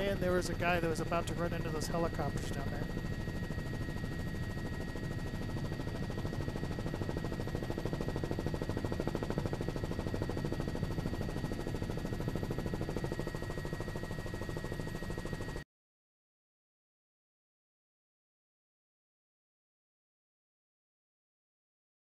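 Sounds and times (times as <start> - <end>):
helicopter rotor chop: 0.0 - 15.6
turbine whine: 0.0 - 15.6.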